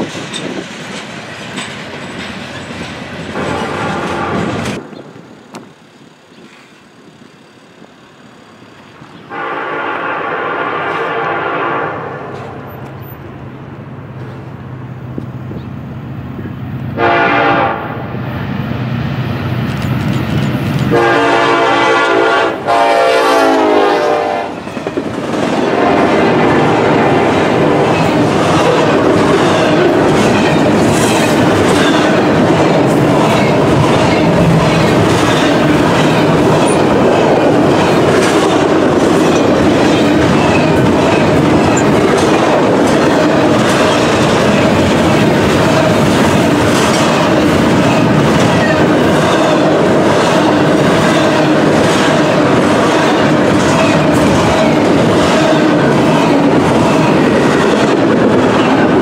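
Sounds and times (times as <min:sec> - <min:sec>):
wheels clicking over rail joints: 0:00.0 - 0:09.3, 0:19.3 - 0:21.0, 0:27.1 - 0:59.0
freight train rumbling past: 0:00.0 - 0:59.0
locomotive air horn chord: 0:03.4 - 0:04.6, 0:09.3 - 0:12.6, 0:17.0 - 0:18.0, 0:20.9 - 0:24.6.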